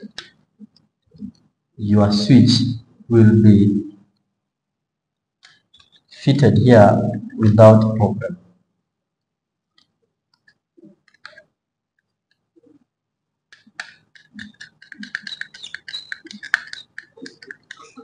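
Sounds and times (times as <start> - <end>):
wires rustling and clicking: 9.7 - 12.9, 13.5 - 18.0.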